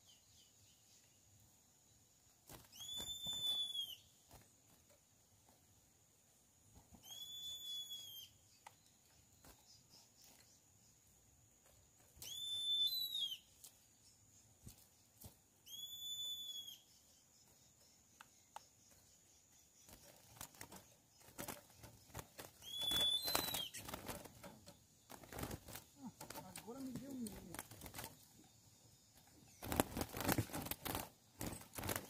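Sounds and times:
wings fluttering: 0:02.4 - 0:05.9, 0:11.6 - 0:16.5, 0:17.4 - 0:32.0
bird whistling: 0:02.7 - 0:04.1, 0:07.0 - 0:08.4, 0:12.2 - 0:13.5, 0:15.6 - 0:17.0, 0:22.6 - 0:23.8
bird scrabbling on wire cage: 0:19.9 - 0:28.4, 0:29.6 - 0:32.0.

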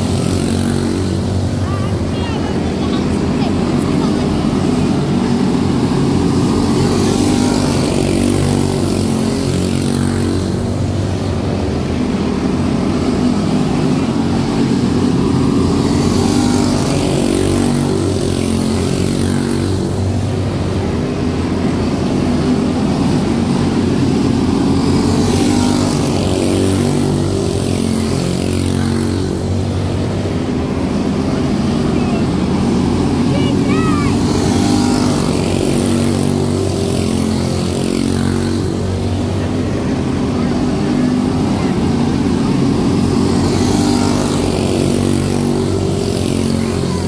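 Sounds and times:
race car engines buzzing: 0:00.0 - 0:47.0.

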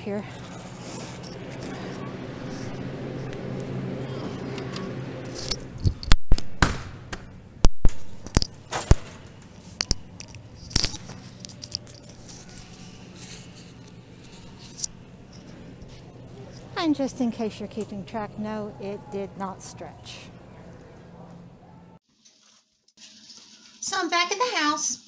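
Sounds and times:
faint low hum: 0:00.0 - 0:22.0
groceries clicking and scraping: 0:00.1 - 0:06.5, 0:07.9 - 0:16.8.

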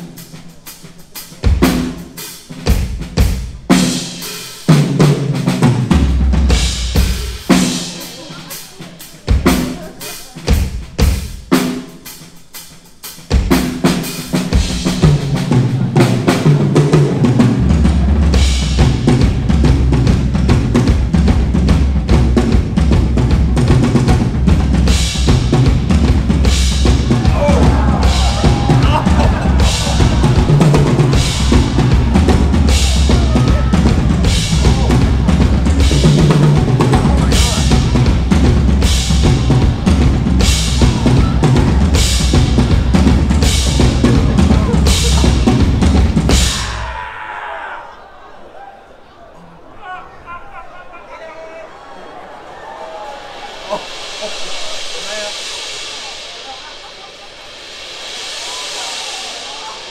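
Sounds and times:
live band playing: 0:00.0 - 0:46.9
sharp drum hits: 0:24.8 - 0:46.8.

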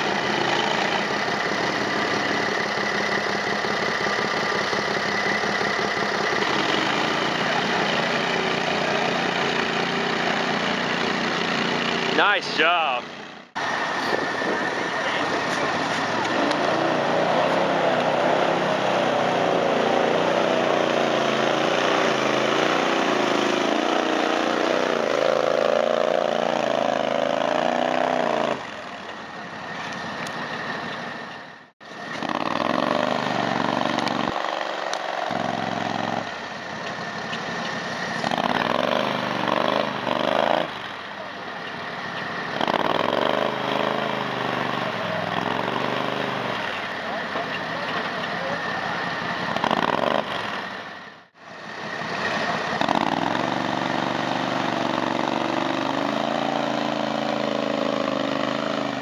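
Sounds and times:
small atv engines revving: 0:00.0 - 0:59.0.

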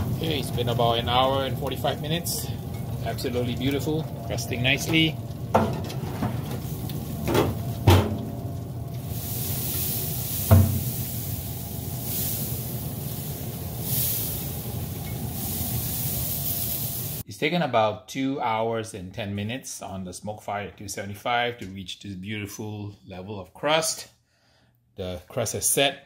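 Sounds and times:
ribs sizzling on grill: 0:00.0 - 0:17.2
racks knocking on metal grate: 0:04.8 - 0:06.5, 0:07.2 - 0:08.3.

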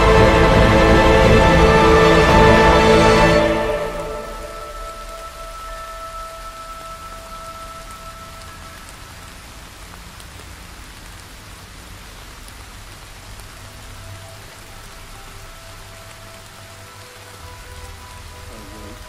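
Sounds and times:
rain falling: 0:00.0 - 0:19.0
faint held musical tones: 0:02.6 - 0:10.5, 0:13.3 - 0:19.0.

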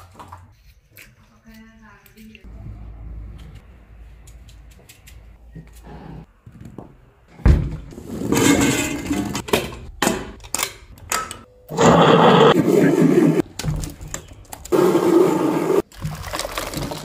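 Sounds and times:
utensils clattering and knocking: 0:08.2 - 0:11.4.

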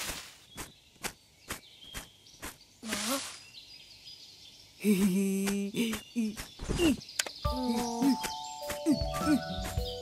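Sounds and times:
leaves rustling: 0:00.0 - 0:03.7.

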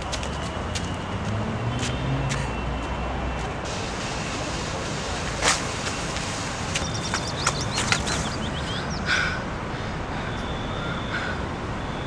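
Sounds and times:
distant road traffic: 0:00.0 - 0:12.0.

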